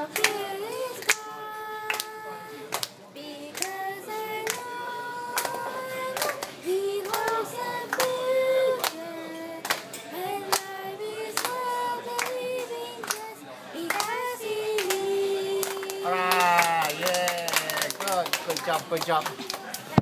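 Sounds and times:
girl singing into microphone: 0.0 - 16.2
sharp hand claps: 1.9 - 2.1, 2.7 - 3.0, 6.2 - 8.1, 9.6 - 10.7, 13.0 - 13.3, 14.8 - 20.0.

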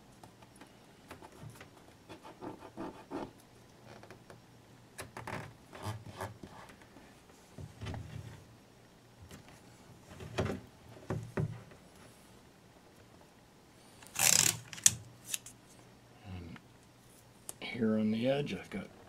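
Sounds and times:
tape rustling and scraping: 14.0 - 15.8.

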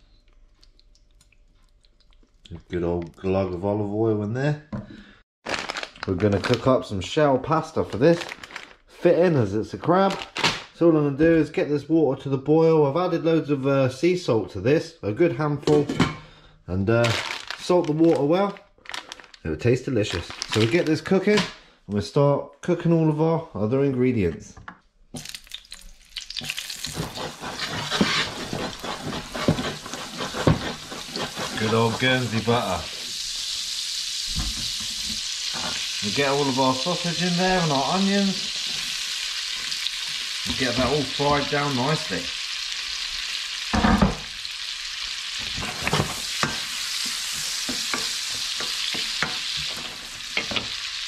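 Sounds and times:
butter sizzling in frying pan: 25.2 - 51.0.

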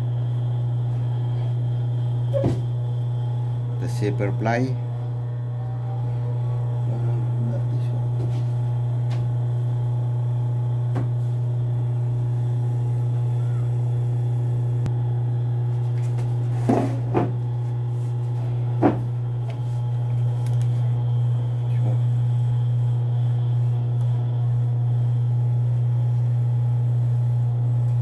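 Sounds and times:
sewing machine motor hum: 0.0 - 14.9.

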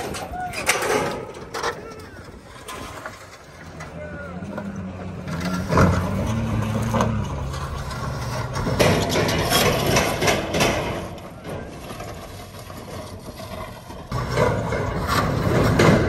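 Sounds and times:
clattering and knocking: 0.0 - 16.0
pickup truck engine running: 4.2 - 11.3.

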